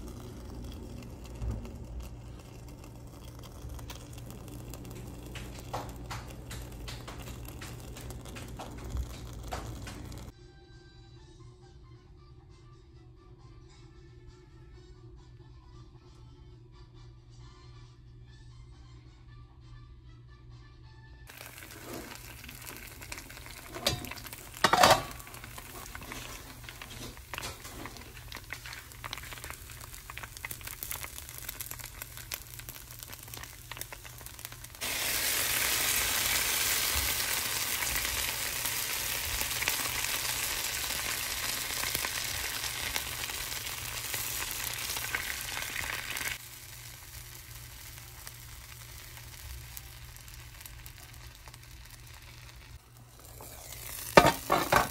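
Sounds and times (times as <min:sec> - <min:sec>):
batter sizzling in pan: 0:00.0 - 0:10.4, 0:21.3 - 0:54.9
kitchen handling clatter: 0:23.6 - 0:28.1, 0:54.2 - 0:54.9.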